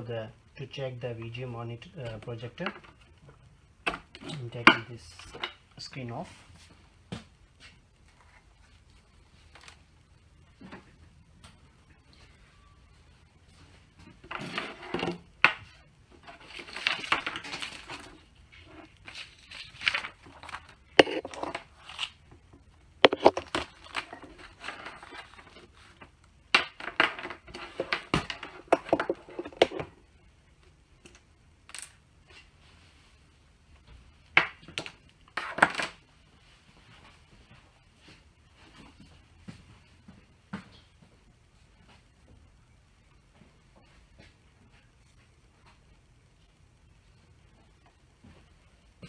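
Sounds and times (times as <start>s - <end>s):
cables rustling and scraping: 1.1s - 40.0s.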